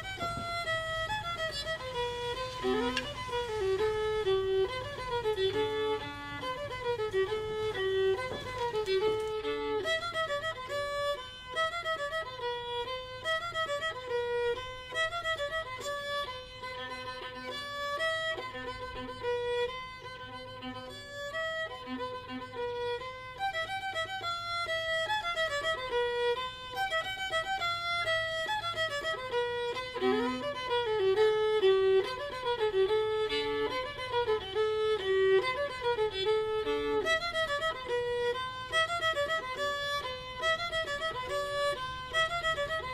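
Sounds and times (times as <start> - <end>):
solo fiddle tune: 0.0 - 42.9.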